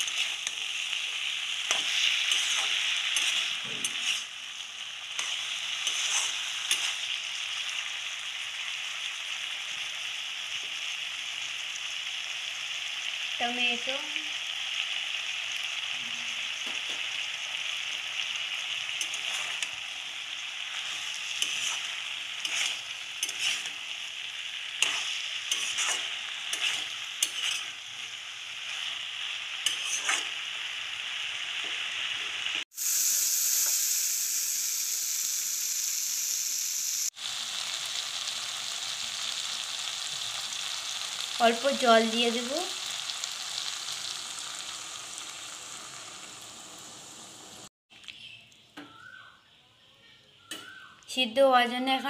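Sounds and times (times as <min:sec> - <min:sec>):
spatula scraping a pan: 0:00.0 - 0:04.4, 0:05.1 - 0:07.2, 0:18.8 - 0:19.8, 0:20.7 - 0:30.5
vegetables sizzling in oil: 0:00.0 - 0:47.7
high hiss: 0:32.7 - 0:37.4.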